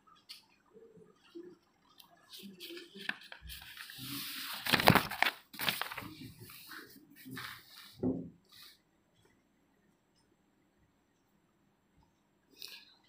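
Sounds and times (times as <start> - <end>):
book pages rustling: 1.2 - 8.0.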